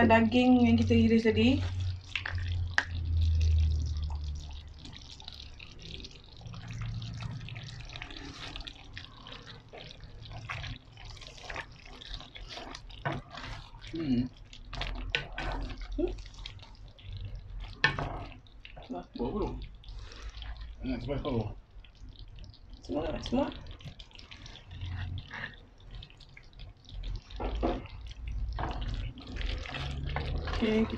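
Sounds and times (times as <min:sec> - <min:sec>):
curry bubbling and popping: 0:00.0 - 0:30.9
wooden spatula stirring: 0:00.0 - 0:30.9.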